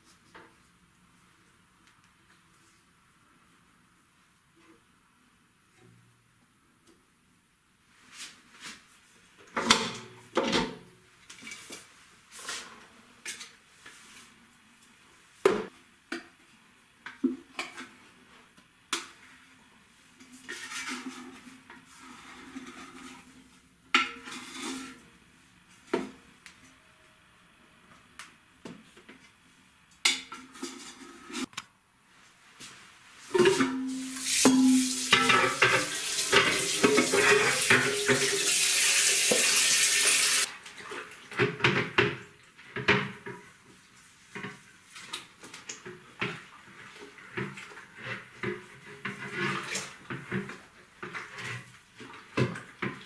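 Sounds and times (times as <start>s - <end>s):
steel mixer bowl clanking: 33.4s - 38.5s
tap running water into bowl: 34.2s - 40.5s.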